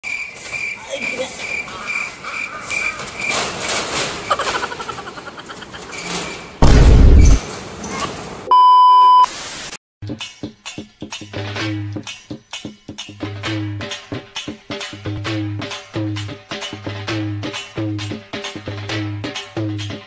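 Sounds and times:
loud low boom: 6.6 - 7.4
steady test-pattern beep: 8.5 - 9.3
static hiss: 9.2 - 9.8.

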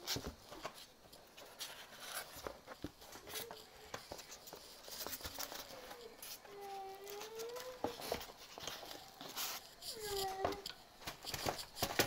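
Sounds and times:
packaging clicks and rustles: 0.0 - 12.0.

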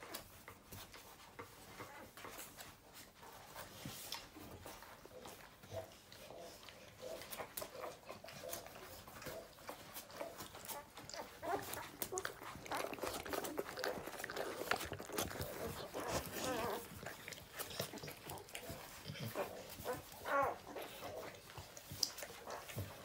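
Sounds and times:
puppies squeaking and grunting: 0.0 - 23.0
puppies suckling: 0.0 - 23.0.

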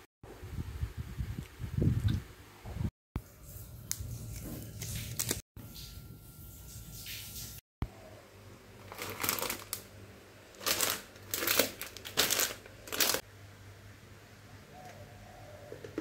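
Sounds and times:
plastic packets rustling: 8.8 - 13.3.

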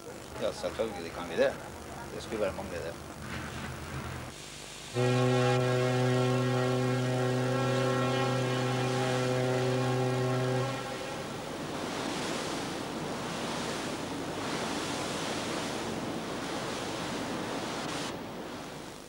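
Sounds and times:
water rushing along ship hull: 4.9 - 19.0
wind on microphone: 7.6 - 18.8.

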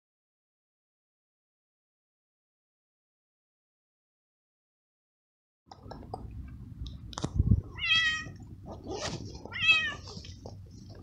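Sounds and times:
cat meowing: 7.7 - 10.2.

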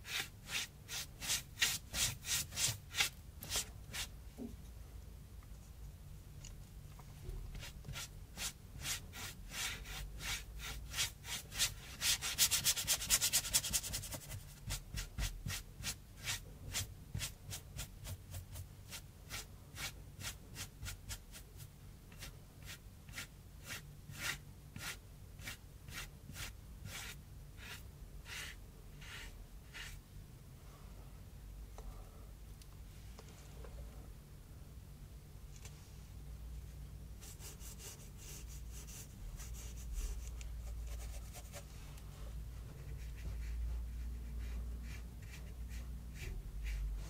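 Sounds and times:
paintbrush stroking on cardboard: 0.0 - 4.1, 22.2 - 30.0, 37.2 - 41.8.

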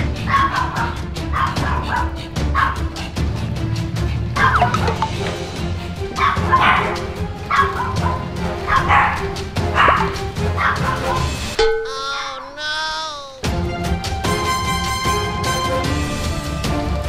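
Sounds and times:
background music with steady beat: 0.0 - 11.8, 13.4 - 17.0
dog barking: 0.3 - 2.9, 4.4 - 5.0, 6.2 - 11.3.

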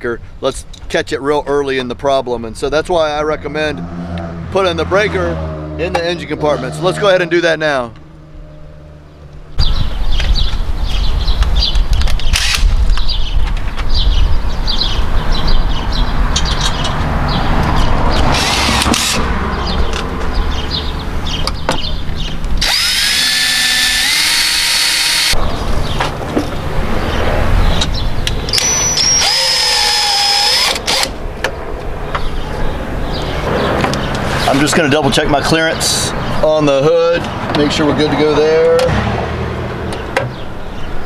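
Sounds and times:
cordless drill whining: 22.6 - 25.4, 28.5 - 31.1.

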